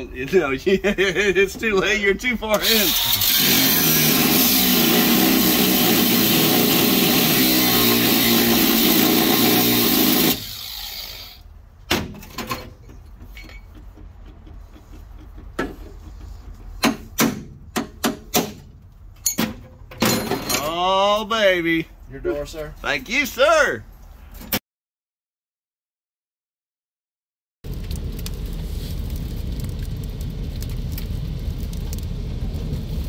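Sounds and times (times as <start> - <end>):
angle grinder cutting steel: 2.5 - 11.4.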